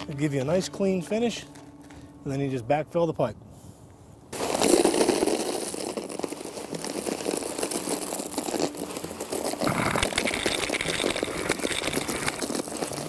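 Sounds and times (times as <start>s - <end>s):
gravel and soil pouring: 4.3s - 13.0s.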